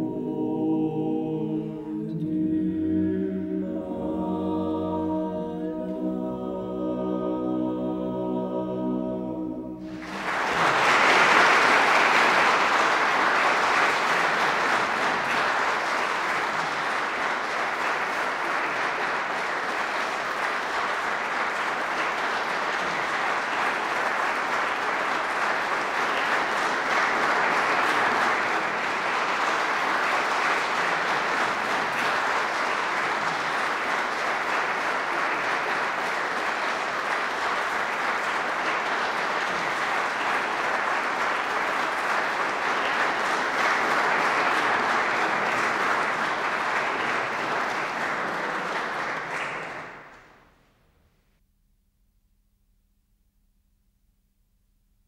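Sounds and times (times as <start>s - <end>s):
audience applauding: 9.8s - 50.4s.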